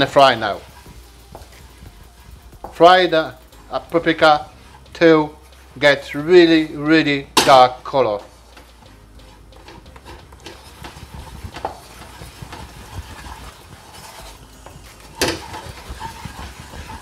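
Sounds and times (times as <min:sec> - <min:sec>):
butter sizzling in a pan: 0:00.0 - 0:17.0
wooden spatula scraping and tapping: 0:00.0 - 0:17.0
spatula knocking on pan: 0:09.6 - 0:17.0.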